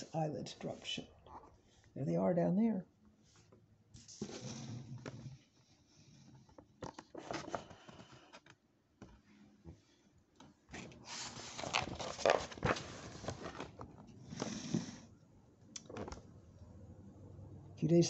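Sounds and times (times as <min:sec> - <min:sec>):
book pages rustling: 0:06.5 - 0:09.2, 0:10.7 - 0:14.2.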